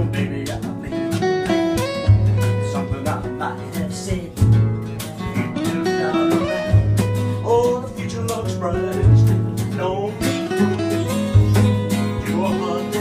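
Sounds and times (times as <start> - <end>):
man singing: 0.0 - 1.3, 2.4 - 13.0
guitar chords: 0.0 - 13.0.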